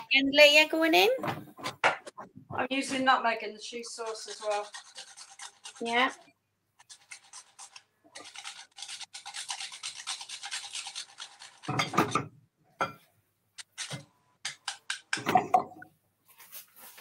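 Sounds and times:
hand grater rasping: 3.9 - 6.2, 6.8 - 11.7
kitchenware clattering: 11.6 - 13.1, 13.8 - 15.9.

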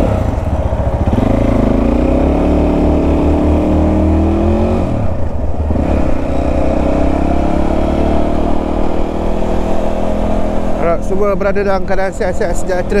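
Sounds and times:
motorcycle engine accelerating: 0.0 - 13.0.

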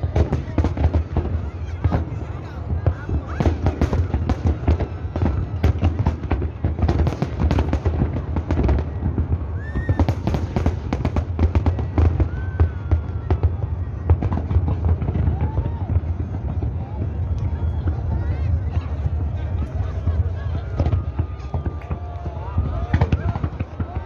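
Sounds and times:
fireworks bursts and crackles: 0.0 - 24.0
firework whistles: 9.4 - 10.6.

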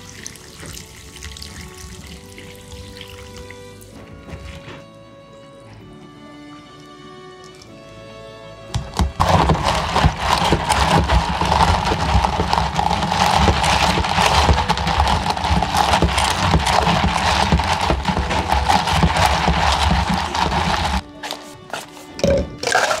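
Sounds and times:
spoon stirring ice in cup: 8.8 - 23.0.

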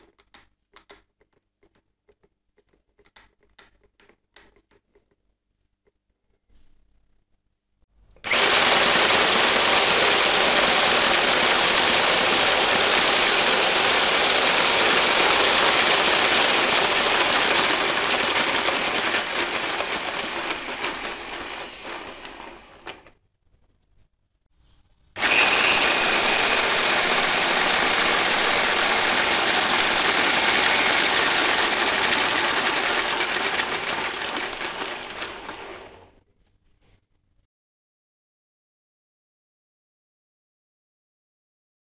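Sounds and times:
electric drill turning plastic engine model: 8.2 - 23.2, 25.2 - 36.2.

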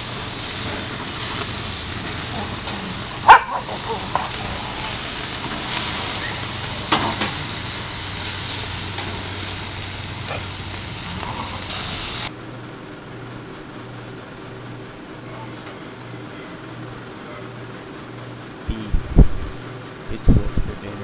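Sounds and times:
steaks sizzling on a grill: 0.0 - 12.3
low hum: 0.0 - 20.2.

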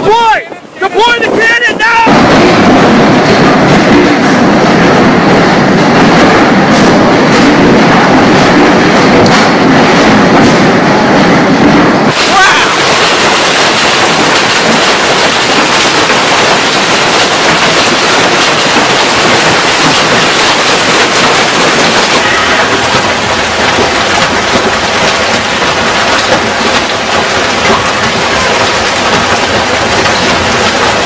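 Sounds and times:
hail and heavy rain pelting: 12.1 - 31.0.

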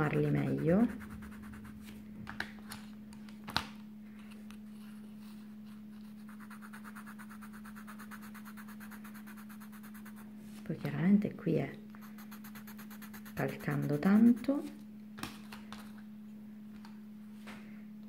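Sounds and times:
pencil scratching on paper: 0.0 - 1.8, 6.1 - 10.2, 12.0 - 14.7
steady low hum: 0.0 - 18.0
pencil shading strokes: 0.1 - 1.8, 6.1 - 10.2, 12.0 - 14.7.

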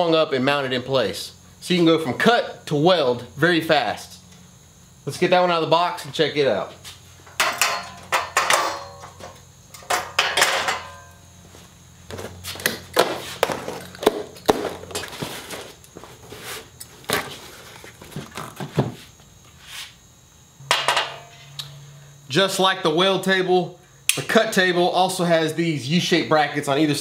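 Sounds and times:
knocks and clatters of steel: 7.3 - 11.2, 20.7 - 21.4.

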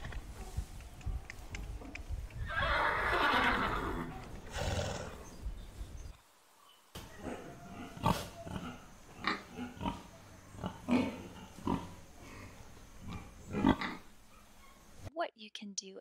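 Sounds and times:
pig grunting: 7.1 - 14.1.

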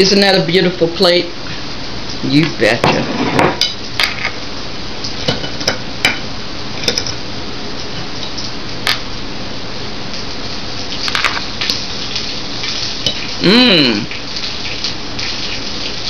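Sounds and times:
fish sizzling in a pan: 10.2 - 16.0.

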